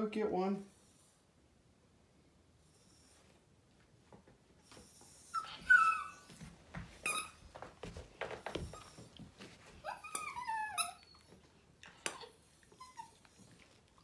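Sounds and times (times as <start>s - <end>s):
dog whining: 4.9s - 7.4s, 8.6s - 14.0s.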